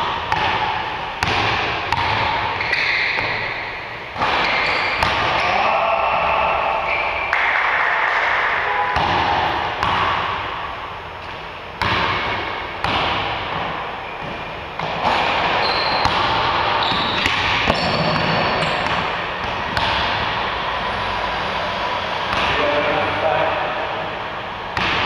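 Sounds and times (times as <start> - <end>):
basketball bouncing on wooden floor: 0.0 - 3.6, 9.0 - 10.4, 11.2 - 20.4
sneaker squeaks: 1.9 - 5.6, 6.4 - 10.1, 11.2 - 20.2.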